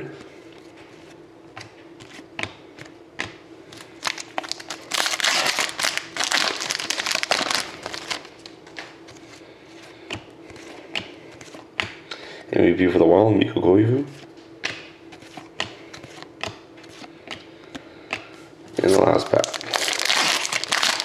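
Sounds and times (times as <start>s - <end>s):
foil wrapper tearing and crinkling: 4.0s - 8.5s, 18.8s - 21.0s.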